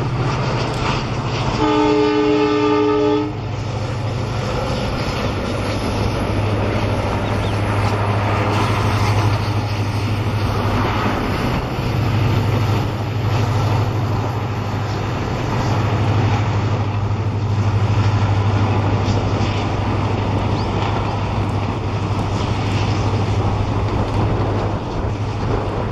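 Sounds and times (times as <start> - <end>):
train coaches rumbling on track: 0.0 - 25.9.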